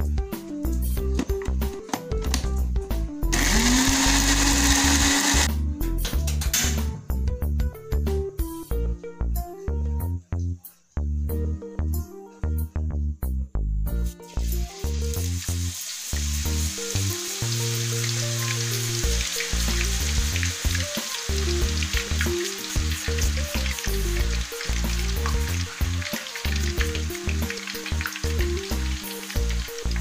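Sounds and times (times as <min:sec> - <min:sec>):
background music: 0:00.0 - 0:30.0
potato deep-frying in oil: 0:14.2 - 0:30.0.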